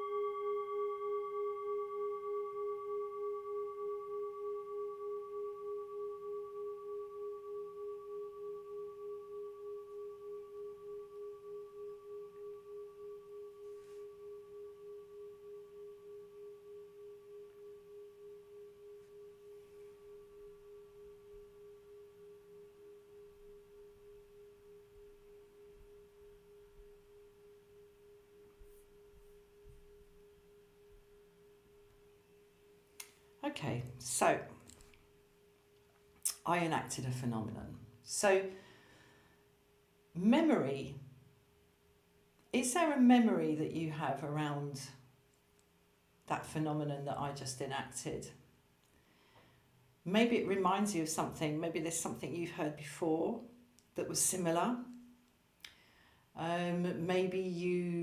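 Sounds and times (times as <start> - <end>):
singing bowl ringing: 0.0 - 35.5.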